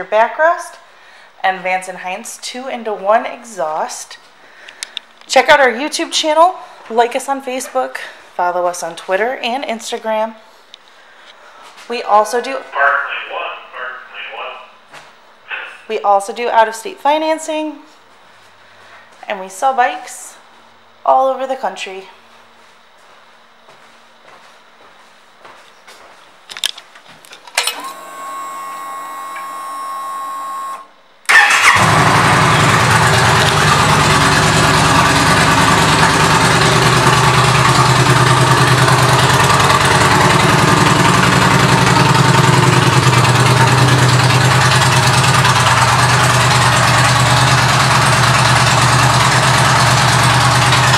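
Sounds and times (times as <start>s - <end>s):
steady hum: 0.0s - 26.5s
motorcycle engine idling: 31.4s - 50.9s.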